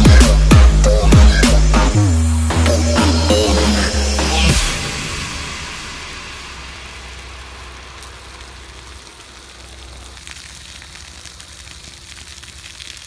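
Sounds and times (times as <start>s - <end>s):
fire crackling: 4.5s - 13.0s
hose spraying water: 4.6s - 13.0s.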